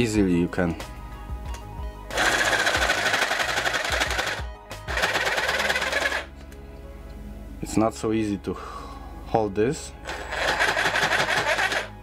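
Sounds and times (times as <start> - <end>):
jigsaw sawing wood: 2.1 - 6.3, 10.1 - 11.9.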